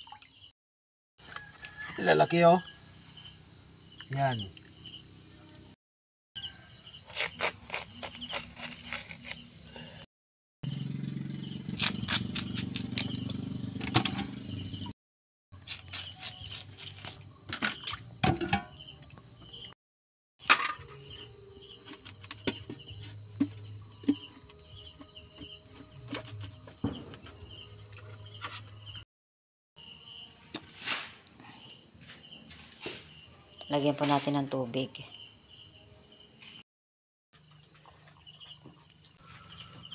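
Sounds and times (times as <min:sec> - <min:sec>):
insects chirping: 0:01.2 - 0:05.8, 0:06.4 - 0:10.0, 0:10.6 - 0:14.9, 0:15.6 - 0:19.8, 0:20.4 - 0:29.0, 0:29.8 - 0:36.6, 0:37.4 - 0:39.9
knife peeling yam: 0:06.9 - 0:09.6, 0:11.6 - 0:13.5, 0:15.6 - 0:18.1.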